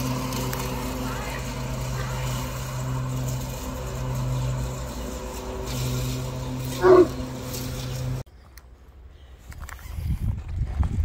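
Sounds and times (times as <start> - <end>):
electric riding mower humming: 0.0 - 8.2.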